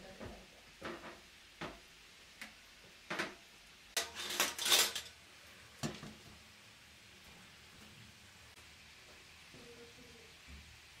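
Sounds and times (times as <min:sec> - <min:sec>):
forks clattering on metal tray: 0:04.0 - 0:05.2.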